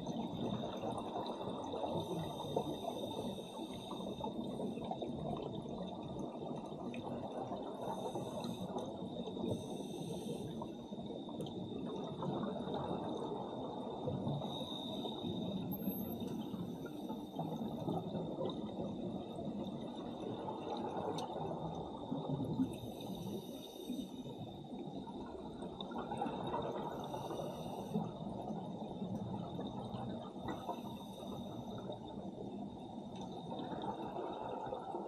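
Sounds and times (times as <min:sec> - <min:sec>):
muffled rumble of water: 0:00.0 - 0:35.0
faint high whine: 0:07.8 - 0:18.1, 0:26.8 - 0:28.3, 0:30.3 - 0:34.5
hiss of exhaled bubbles: 0:26.0 - 0:28.3.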